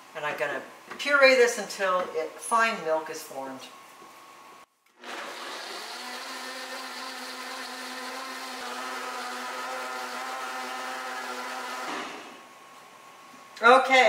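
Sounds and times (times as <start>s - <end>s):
blender running at high speed: 5.0s - 12.4s.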